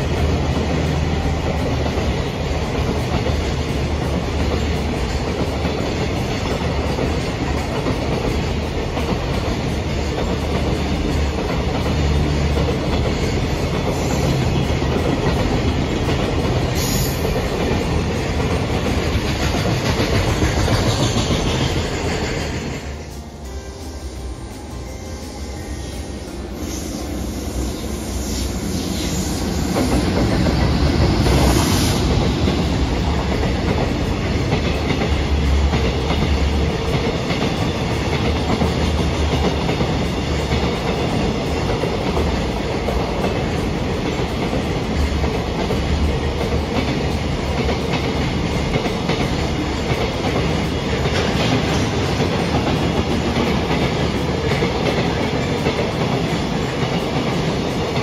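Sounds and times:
train running past: 0.0 - 58.0.

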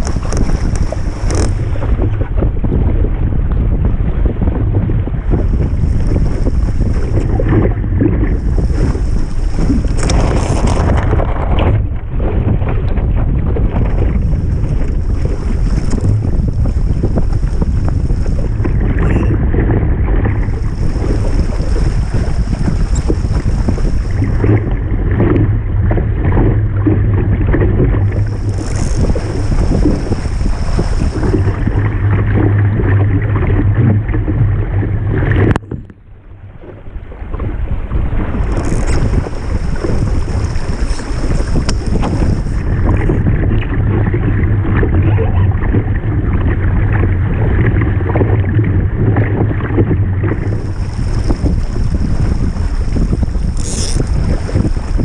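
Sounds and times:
water rushing along hull: 0.0 - 55.0
wind buffeting microphone: 0.0 - 55.0.

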